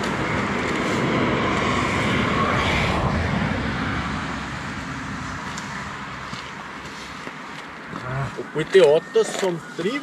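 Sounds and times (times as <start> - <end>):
wind rushing: 0.0 - 6.8.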